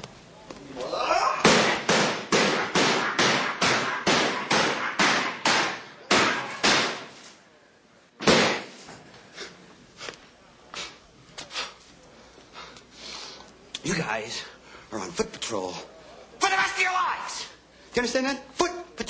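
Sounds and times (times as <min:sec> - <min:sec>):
club landing heavy blows: 0:01.4 - 0:07.2, 0:08.2 - 0:08.8.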